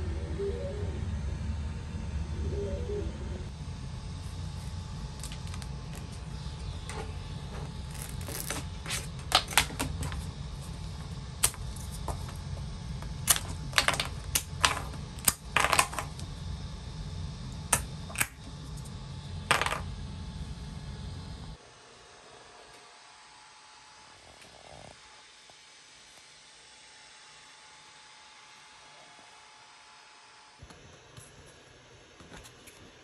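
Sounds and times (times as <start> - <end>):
steady low hum: 0.0 - 33.0
plastic cubes clacking: 13.2 - 16.2.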